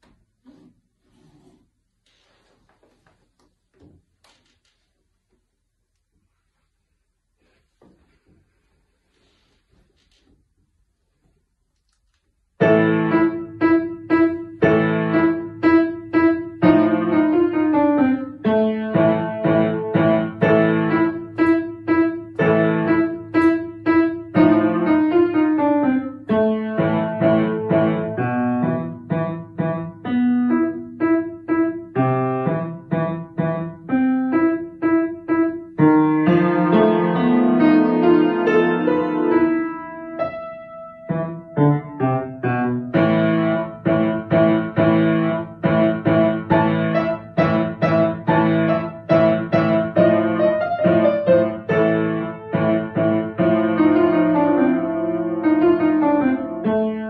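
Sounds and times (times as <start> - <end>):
upright piano piece: 12.4 - 57.0.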